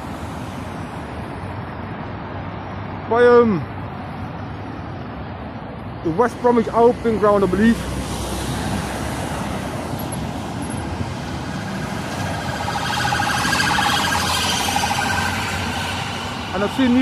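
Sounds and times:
road traffic passing: 0.0 - 17.0
lorry engine passing close: 8.2 - 17.0.

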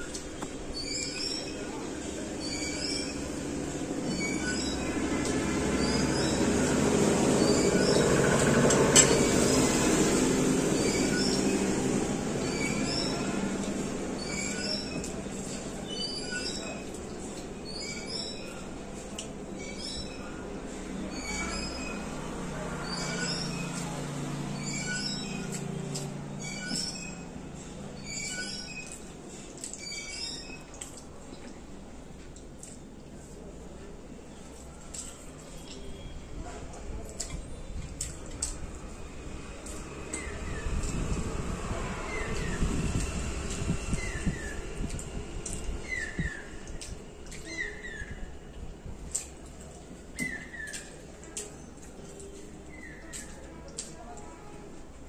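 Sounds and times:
vehicle passing rumble: 5.0 - 14.2, 38.6 - 45.5.

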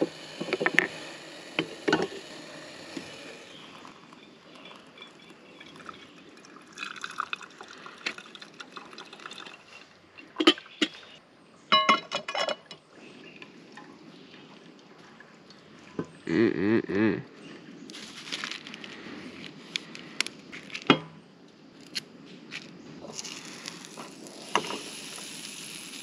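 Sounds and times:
coffee being poured: 0.0 - 10.0, 23.0 - 26.0.

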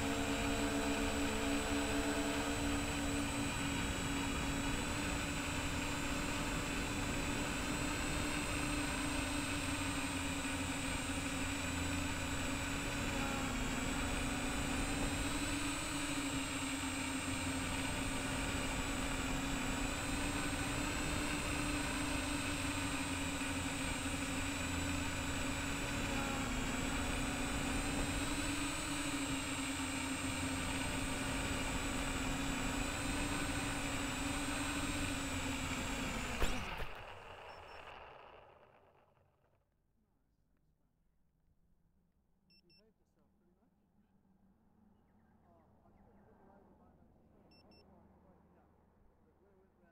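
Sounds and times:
drone motors whining: 0.0 - 39.2.

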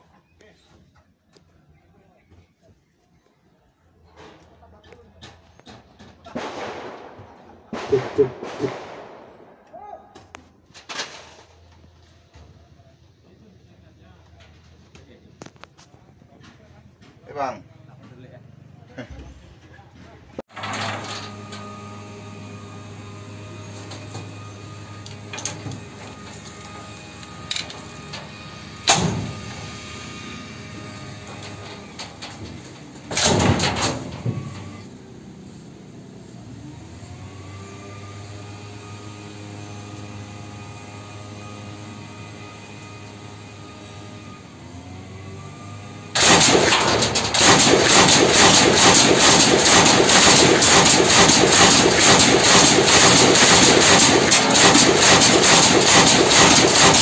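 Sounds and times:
machine gun firing bursts: 6.4 - 9.5, 46.2 - 57.0.

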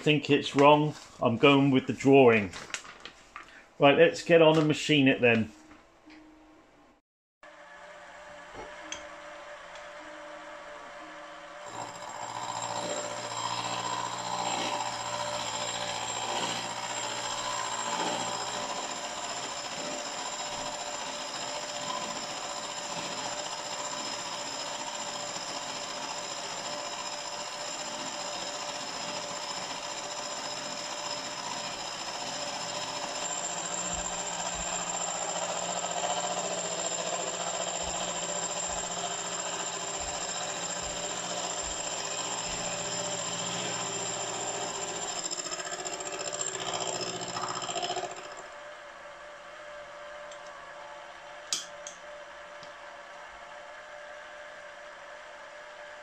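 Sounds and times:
milling machine whirring: 8.6 - 48.5.

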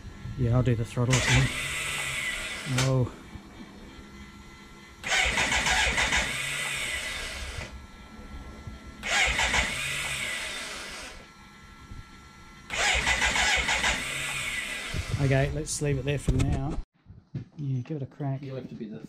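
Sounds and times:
electric starter cranking engine: 0.0 - 15.8.

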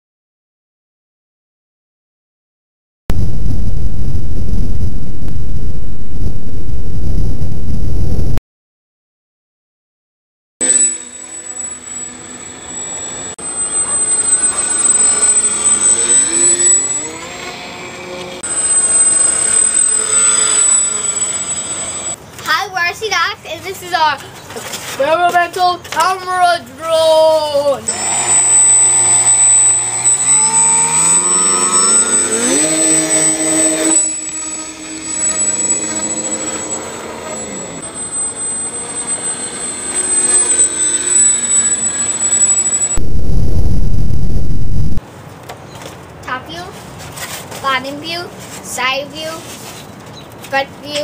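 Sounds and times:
electric motors whining: 10.6 - 22.2, 27.9 - 45.0.

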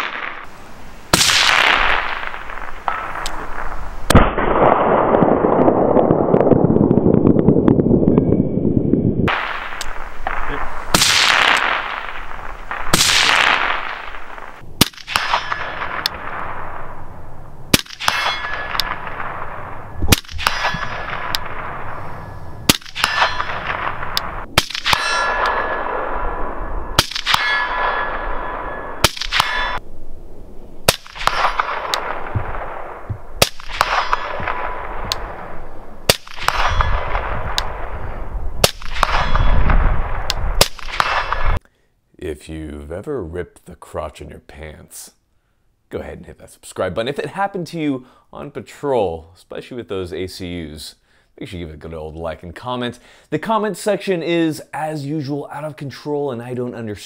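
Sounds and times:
suppressed rifle shots: 1.1 - 6.4, 9.3 - 17.1, 17.7 - 29.8, 30.8 - 41.6
steel target ringing: 15.1 - 16.4, 17.9 - 29.8, 33.6 - 35.0, 36.3 - 37.3.

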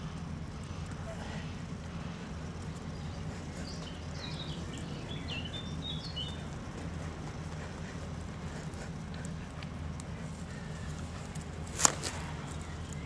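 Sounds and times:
low background rumble: 0.0 - 13.0
small bird chirping: 1.2 - 13.0.

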